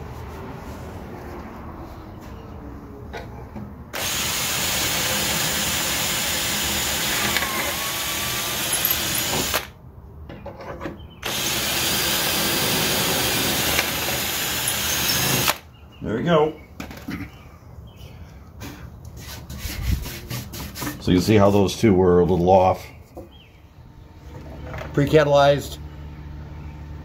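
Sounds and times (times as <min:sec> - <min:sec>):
cordless drill boring into wood: 0:04.0 - 0:09.7, 0:11.2 - 0:15.6.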